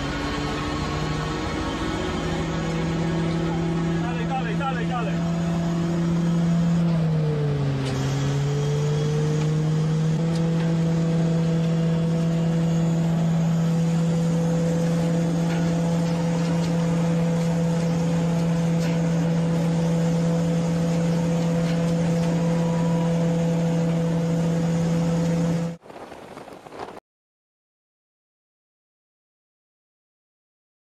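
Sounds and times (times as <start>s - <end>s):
harvesting machine humming: 0.0s - 26.1s.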